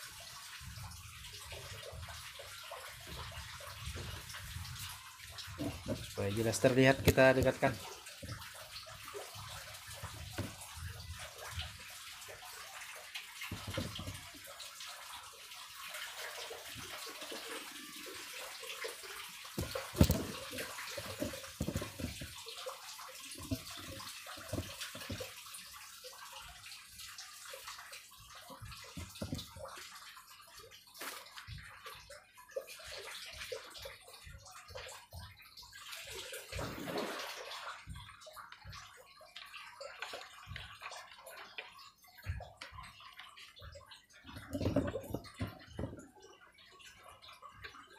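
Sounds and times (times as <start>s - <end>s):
water splashing into a tub: 0.0s - 47.9s
handling knocks: 13.5s - 14.2s, 19.6s - 22.4s.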